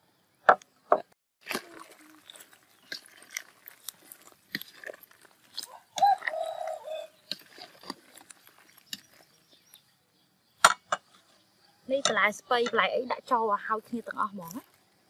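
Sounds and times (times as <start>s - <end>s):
animal call: 5.6s - 7.7s.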